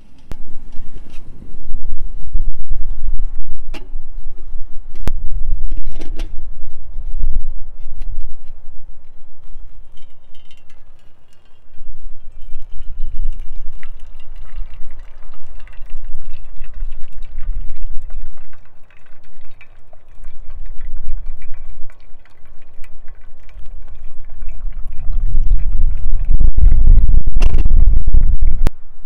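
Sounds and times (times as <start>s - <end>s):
wind rumble on microphone: 0.0s - 29.0s
coffee dripping through filter: 9.1s - 28.7s
water poured from kettle: 9.8s - 28.5s.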